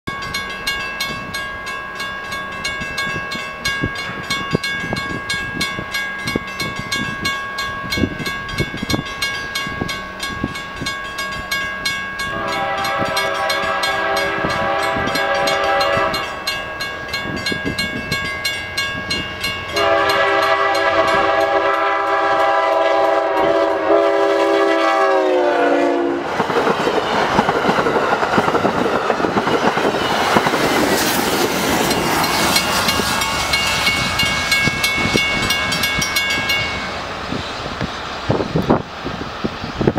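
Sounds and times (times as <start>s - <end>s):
train coaches rushing past: 0.1s - 39.9s
train horn chord: 12.2s - 16.6s, 19.7s - 26.3s.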